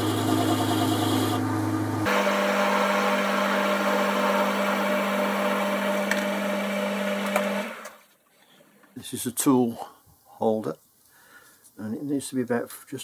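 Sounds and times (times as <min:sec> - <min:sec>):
metal lathe cutting metal: 0:00.0 - 0:01.4.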